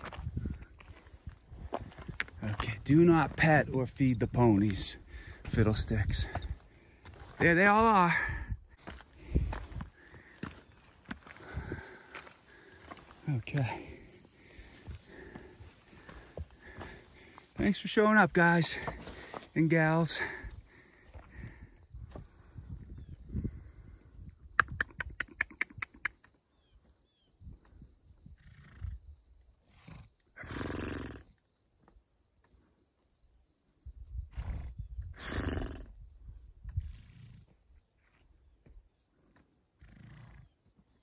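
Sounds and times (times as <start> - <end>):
pulsing insect trill: 0.1 - 41.0
sharp clicks: 24.6 - 26.4
ponies snorting: 29.7 - 31.3, 34.3 - 35.9, 39.8 - 40.6.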